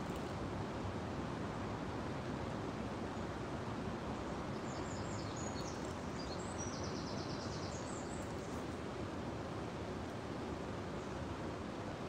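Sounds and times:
river water flowing: 0.0s - 12.0s
songbird chirping and trilling: 4.6s - 8.3s.

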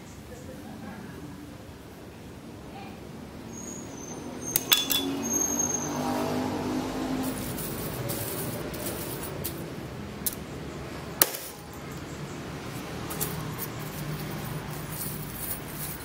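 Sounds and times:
sharp metallic click: 4.5s - 5.2s
chainmail rings clinking: 4.6s - 5.6s, 7.2s - 9.7s, 13.0s - 16.0s.

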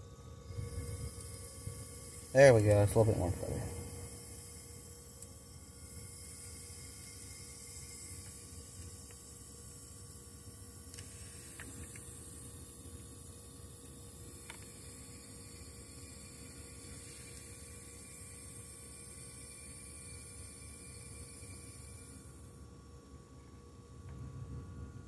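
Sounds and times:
refrigerator compressor humming: 0.0s - 25.0s.

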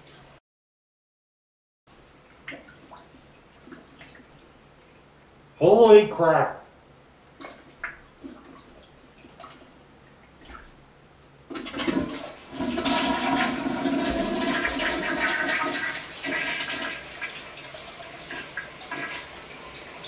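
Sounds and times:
toilet flushing: 11.5s - 20.0s
toilet tank refilling: 11.5s - 20.0s.

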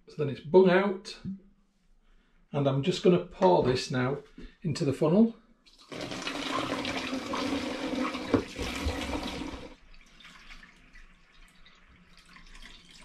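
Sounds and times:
liquid pouring into a jug: 5.7s - 13.0s.

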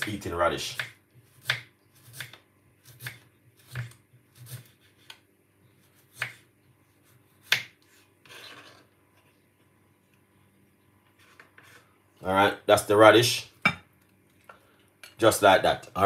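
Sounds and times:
knife scraping board: 1.4s - 5.2s, 7.8s - 8.9s, 11.2s - 11.9s.

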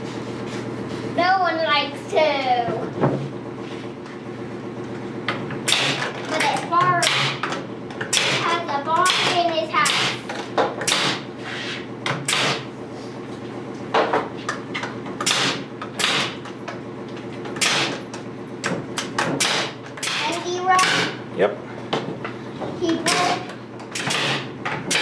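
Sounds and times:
steady low hum: 0.0s - 25.0s
nail gun firing: 5.7s - 6.1s, 7.0s - 7.4s, 8.1s - 8.5s, 9.1s - 10.2s, 10.8s - 11.2s, 12.2s - 12.7s, 15.2s - 16.4s, 17.6s - 18.0s, 19.0s - 21.2s, 23.1s - 25.0s.

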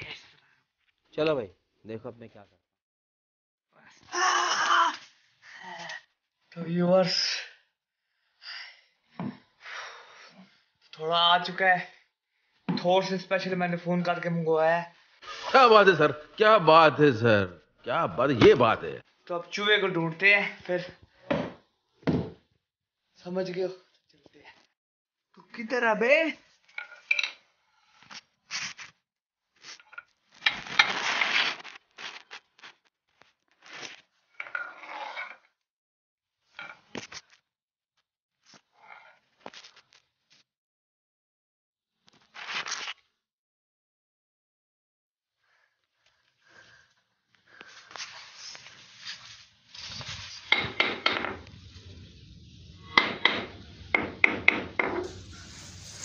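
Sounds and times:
sharp knock: 52.9s - 55.1s.

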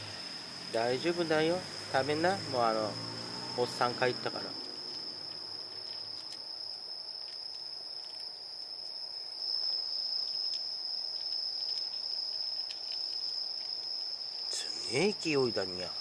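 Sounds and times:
night insects chirring: 0.0s - 16.0s
cat crunching dry kibble: 10.4s - 14.6s.

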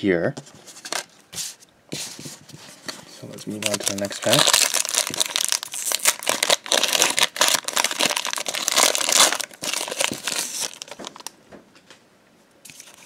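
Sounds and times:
foil wrapper crinkling and tearing: 3.4s - 11.3s.

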